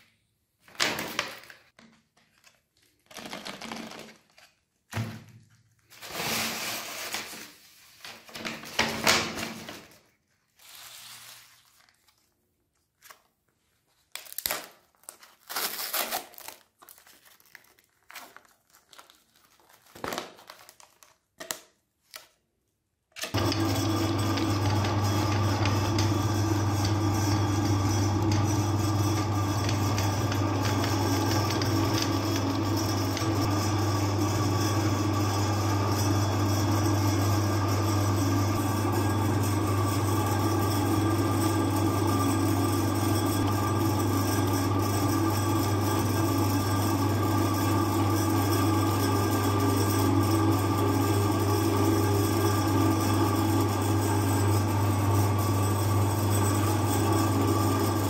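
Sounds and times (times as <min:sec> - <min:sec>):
electric meat grinder humming: 0:23.2 - 0:58.0.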